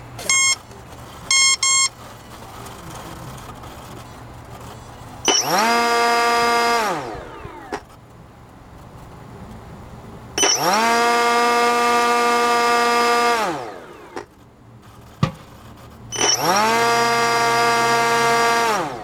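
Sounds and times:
electric motor and propeller spinning: 0.0 - 19.0
electronic arming beeps: 0.2 - 0.7, 1.3 - 2.0, 5.2 - 5.7, 10.4 - 10.8, 16.1 - 16.7.

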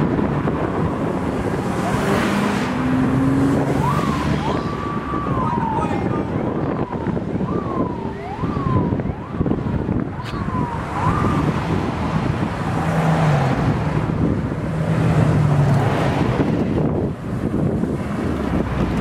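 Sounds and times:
highway traffic noise: 0.0 - 19.0
wind rushing over microphone: 0.0 - 19.0
siren-like tone sweeping down: 3.5 - 9.6.

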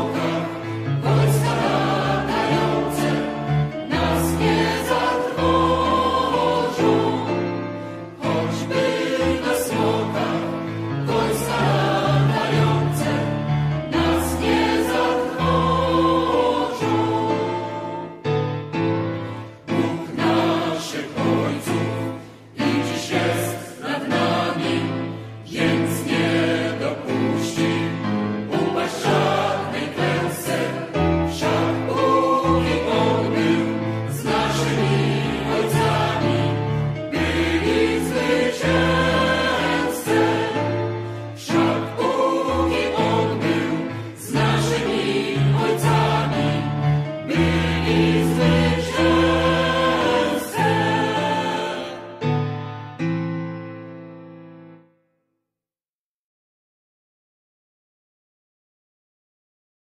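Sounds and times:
choir singing with accompaniment: 0.0 - 54.8.

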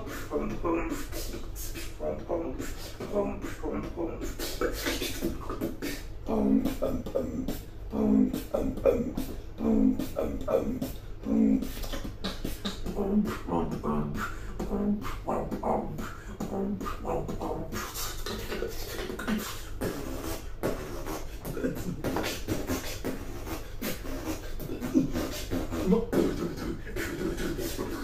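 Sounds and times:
person beatboxing: 0.0 - 28.0.

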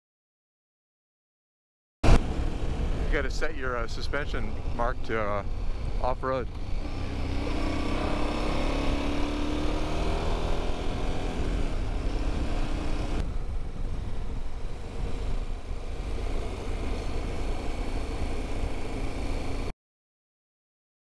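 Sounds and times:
motorcycle engine accelerating: 2.0 - 19.7
wind rumble on microphone: 11.2 - 19.1.

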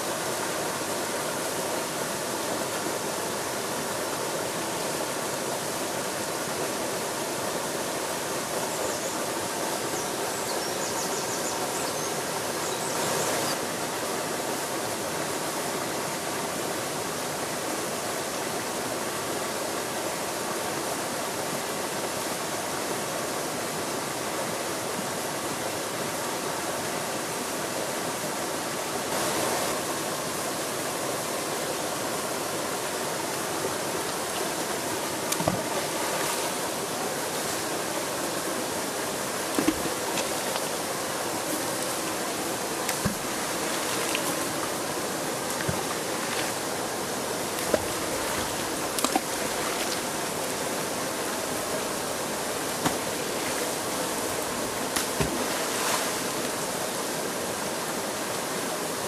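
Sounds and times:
small waterfall rushing: 0.0 - 59.0
water plops and splashes: 47.6 - 50.1.

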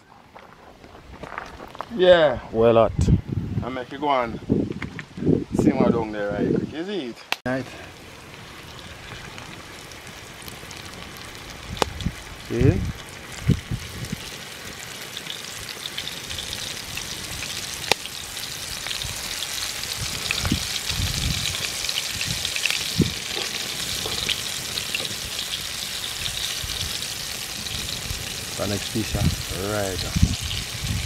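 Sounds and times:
chicken frying in oil: 7.7 - 31.0.

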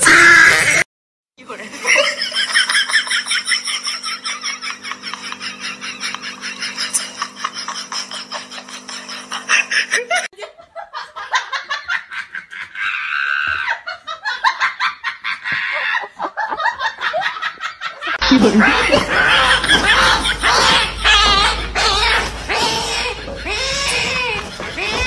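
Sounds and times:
people laughing: 1.6 - 25.0
light laughter and giggling: 1.8 - 25.0
steady low hum: 18.2 - 25.0.

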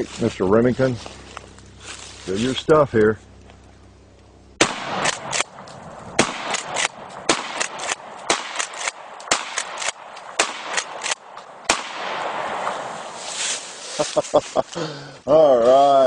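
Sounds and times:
shotgun blasts: 4.6 - 13.2
shotgun pump clacks: 5.0 - 11.2.

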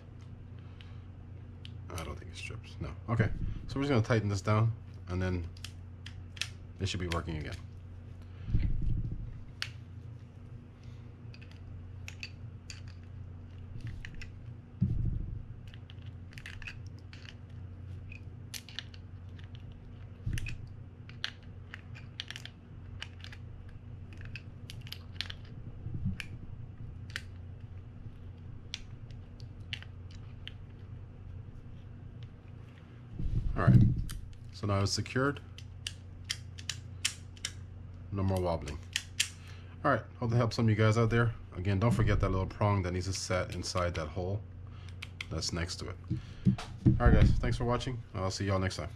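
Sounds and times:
dull handling knocks: 46.1 - 47.4.

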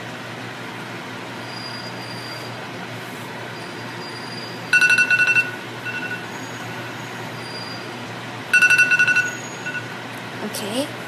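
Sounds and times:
timer alarm rapid high beeps: 4.7 - 6.9, 8.5 - 9.9.

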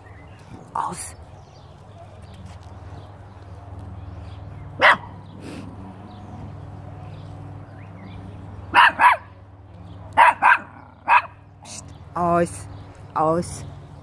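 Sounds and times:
small dog barking: 4.8 - 5.2, 8.7 - 9.3, 10.2 - 11.4.

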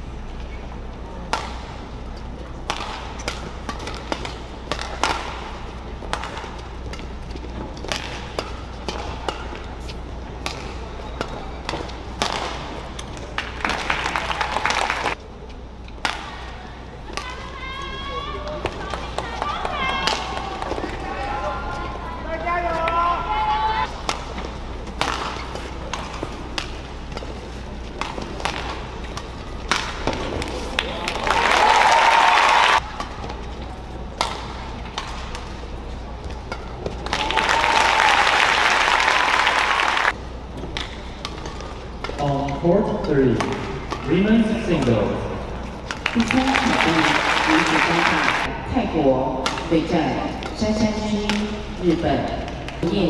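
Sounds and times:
low arena hum: 0.0 - 53.0
racket hitting shuttlecock: 1.2 - 1.8, 2.6 - 14.0, 23.9 - 31.2, 34.1 - 35.6, 36.2 - 37.6.

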